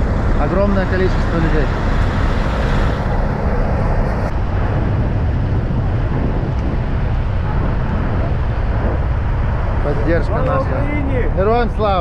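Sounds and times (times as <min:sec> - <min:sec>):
trucks and cars idling: 0:00.0 - 0:04.3
wind buffeting microphone: 0:00.0 - 0:12.0.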